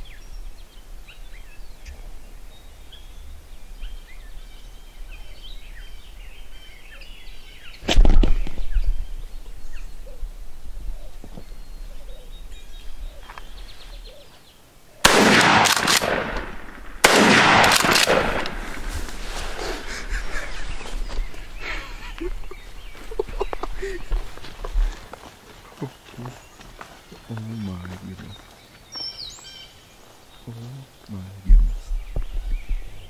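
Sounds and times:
faint songbird chirps: 0:00.0 - 0:15.0, 0:19.9 - 0:25.0, 0:25.6 - 0:33.0
shotgun blasts: 0:15.0 - 0:18.9.

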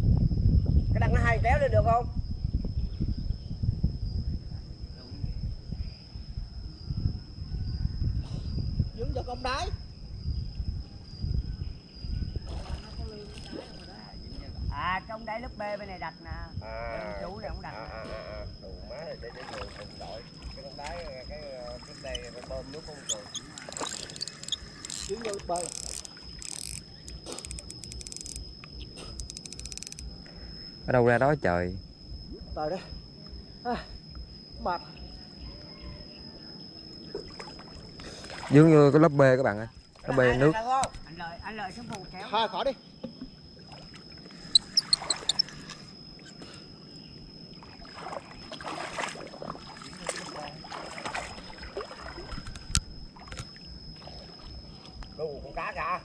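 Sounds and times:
low wind rumble: 0:00.0 - 0:15.3
insects chirping in pulsed trills: 0:00.0 - 0:56.0
water sloshing and splashing: 0:12.4 - 0:14.1, 0:19.2 - 0:26.4, 0:37.1 - 0:38.7, 0:43.6 - 0:45.6, 0:47.5 - 0:55.0
steady high whine: 0:14.0 - 0:56.0.

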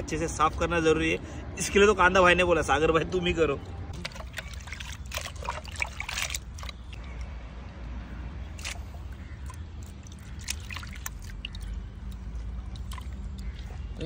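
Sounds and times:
water dripping and splashing: 0:03.6 - 0:14.0
wet squelches of octopus: 0:03.9 - 0:14.0.

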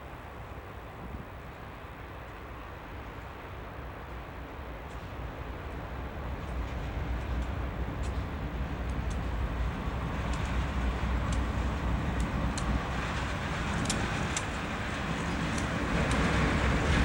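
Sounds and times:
locomotive engine drone: 0:00.0 - 0:17.0
wheels clicking on rails: 0:04.8 - 0:17.0.

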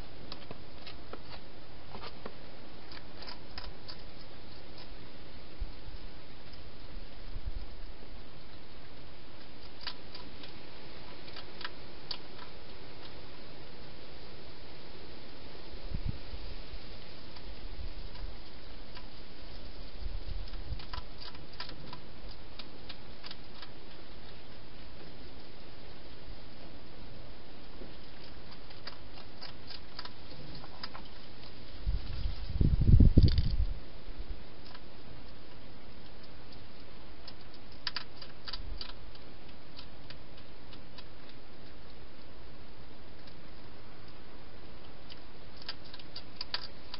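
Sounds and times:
steady hiss: 0:00.0 - 0:28.7
hedgehog eating clicks and smacks: 0:00.3 - 0:05.0, 0:07.6 - 0:13.2, 0:18.0 - 0:26.3, 0:27.6 - 0:33.7, 0:34.4 - 0:46.9.

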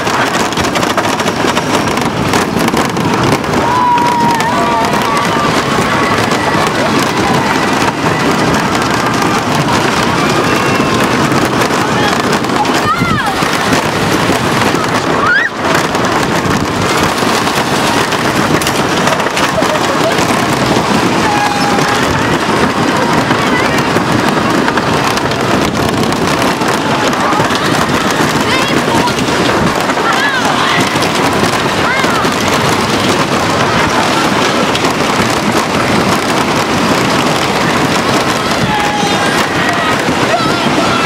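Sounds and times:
roller coaster wheels rumbling on track: 0:00.0 - 0:41.0
wind rushing: 0:00.0 - 0:41.0.

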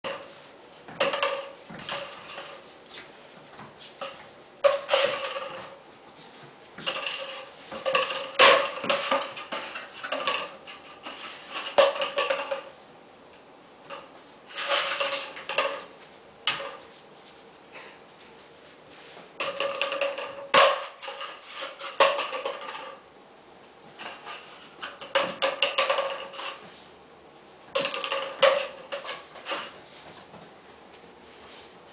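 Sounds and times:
cardboard tube rolling on tile floor: 0:00.0 - 0:12.8, 0:13.8 - 0:17.3, 0:19.4 - 0:23.1, 0:23.8 - 0:26.9, 0:27.7 - 0:30.7.

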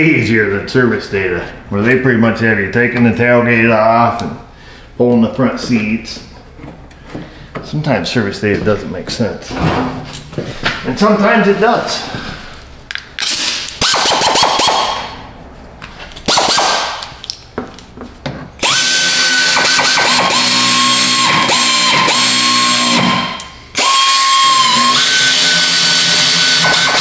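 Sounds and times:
power driver motor whining: 0:18.6 - 0:27.0.

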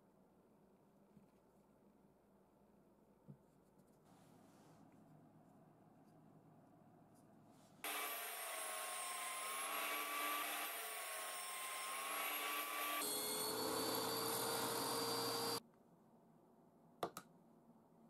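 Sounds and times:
table saw cutting plywood: 0:07.8 - 0:15.6.

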